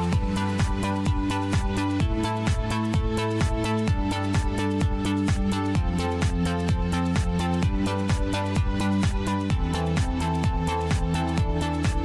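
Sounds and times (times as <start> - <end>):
electronic music with kick drum: 0.0 - 12.0.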